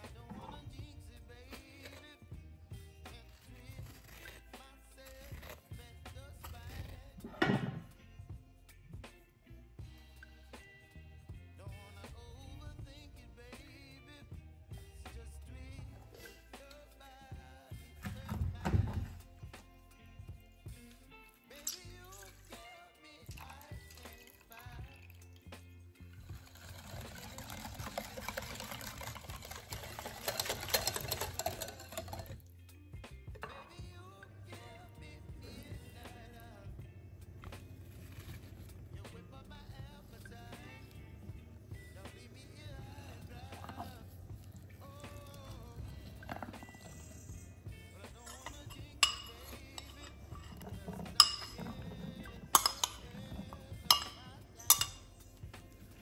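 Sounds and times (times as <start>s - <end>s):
faint background music: 0.0s - 56.0s
whisk rattling against bowl: 26.2s - 32.4s, 37.6s - 55.6s
metal spoon clinking on porcelain: 30.2s - 32.3s, 48.2s - 55.1s.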